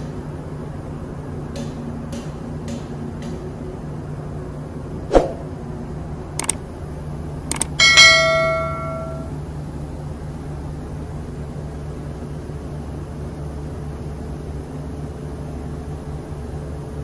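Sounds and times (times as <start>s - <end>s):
machinery hum: 0.0s - 17.0s
light metallic clicks: 6.4s - 6.6s, 7.5s - 9.2s
steel part knocked ringing: 7.5s - 9.3s.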